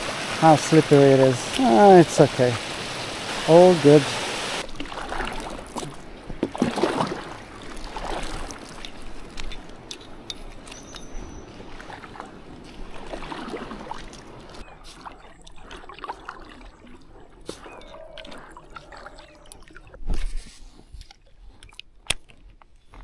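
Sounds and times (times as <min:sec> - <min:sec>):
water dripping: 0:00.0 - 0:12.8, 0:13.8 - 0:20.0
kayak paddle splashing: 0:00.0 - 0:20.0.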